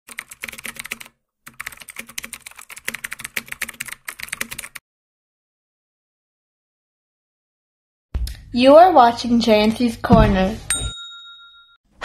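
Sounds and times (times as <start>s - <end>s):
computer keyboard typing: 0.1s - 4.8s.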